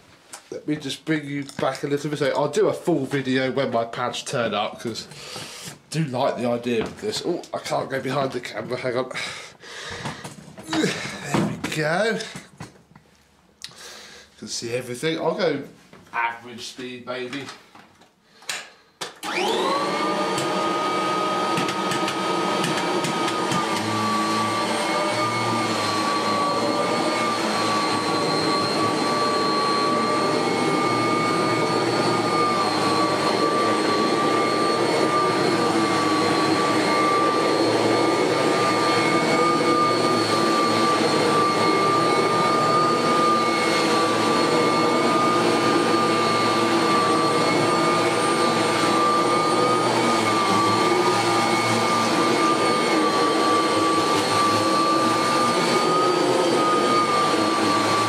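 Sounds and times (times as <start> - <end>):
vacuum cleaner whining: 9.8 - 12.8, 18.5 - 58.0.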